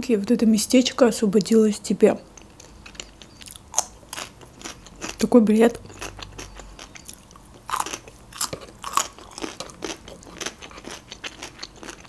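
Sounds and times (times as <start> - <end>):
crunchy chewing of cucumber: 2.4 - 12.0.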